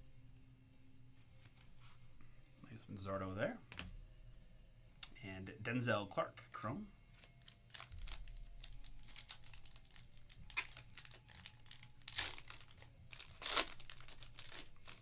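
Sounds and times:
foil wrapper crinkling: 0:07.2 - 0:15.0
foil wrapper ripping: 0:07.2 - 0:15.0.

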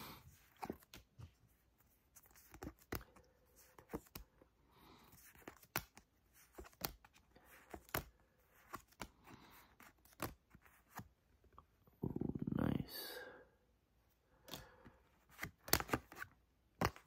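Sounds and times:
cards snapping and slapping: 0:15.3 - 0:17.0.

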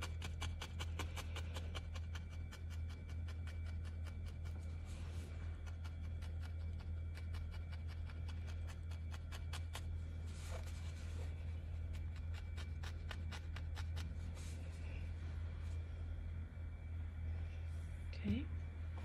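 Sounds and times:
felting needle ticking into wool: 0:00.0 - 0:04.7, 0:05.5 - 0:09.9
steady low hum: 0:00.0 - 0:19.0.

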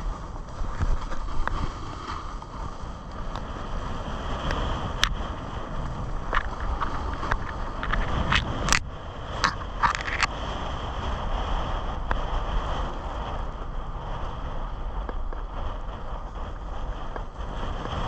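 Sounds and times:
ski edges scraping: 0:00.0 - 0:08.8
skis sliding on packed snow: 0:00.0 - 0:08.8, 0:09.4 - 0:18.0
wind buffeting microphone: 0:00.0 - 0:18.0.

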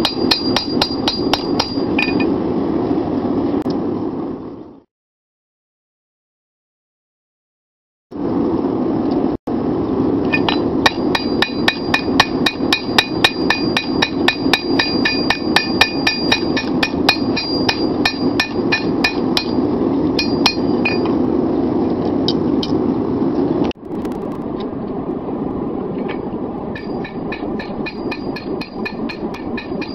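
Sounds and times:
hammer striking hot steel on anvil: 0:00.0 - 0:02.4, 0:10.3 - 0:21.2, 0:26.7 - 0:29.9
steady rushing noise: 0:08.1 - 0:29.9.

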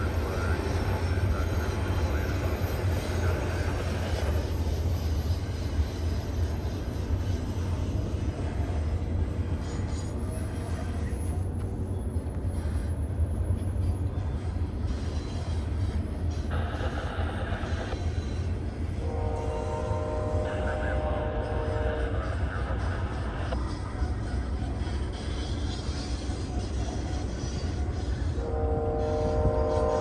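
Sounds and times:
freight train rumbling on rails: 0:00.0 - 0:30.0.

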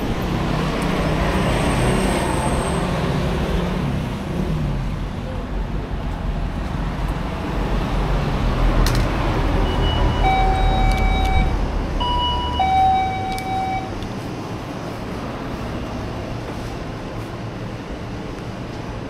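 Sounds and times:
road traffic: 0:00.0 - 0:19.0
wind: 0:00.0 - 0:19.0.

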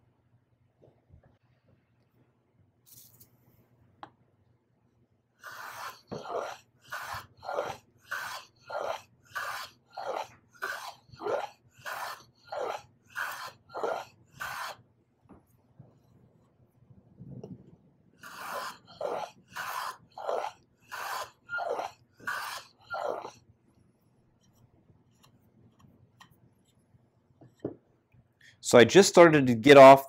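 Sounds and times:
hand plane shaving strokes: 0:05.4 - 0:14.8, 0:18.2 - 0:23.3.

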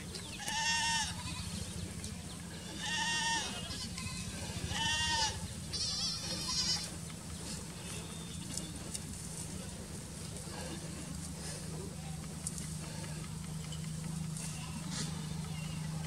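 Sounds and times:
goats bleating: 0:00.4 - 0:01.7, 0:02.4 - 0:07.2, 0:14.3 - 0:16.0.

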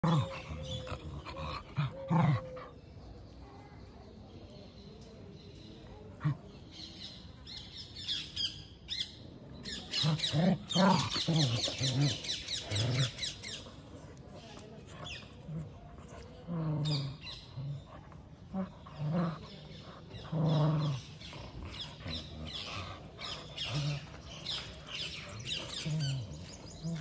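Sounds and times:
dogs growling and snarling: 0:00.0 - 0:02.8, 0:05.8 - 0:06.8, 0:09.7 - 0:27.0
birds chirping: 0:00.0 - 0:27.0.

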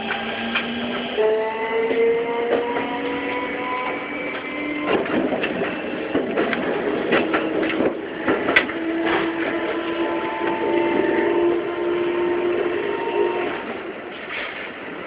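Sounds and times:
wheels clicking on track: 0:00.0 - 0:01.1, 0:01.9 - 0:11.1.

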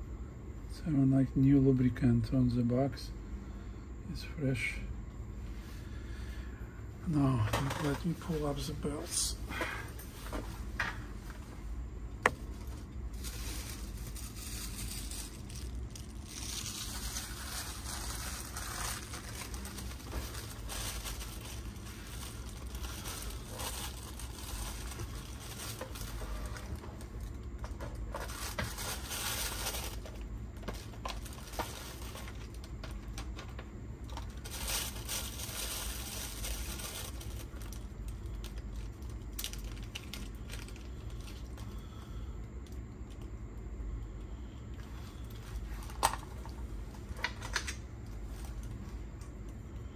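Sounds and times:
steady low hum: 0:00.0 - 0:49.9
hands crinkling and rustling: 0:12.3 - 0:41.8.

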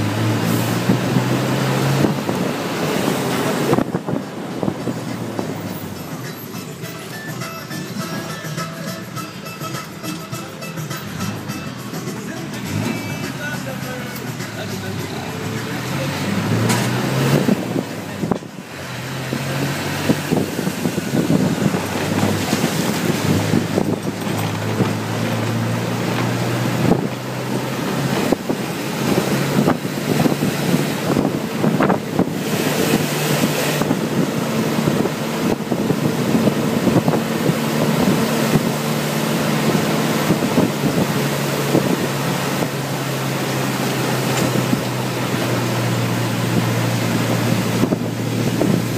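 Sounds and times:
bus engine running: 0:00.0 - 0:48.9
wind rushing in: 0:19.1 - 0:27.4.

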